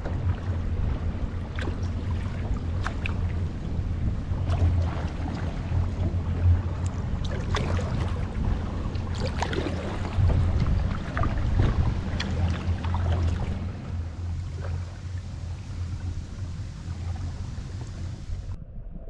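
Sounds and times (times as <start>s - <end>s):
kayak paddle dipping in water: 0.0s - 18.6s
steady low rumble: 0.0s - 19.0s
small water splashes and drips: 1.5s - 3.4s, 4.4s - 13.7s.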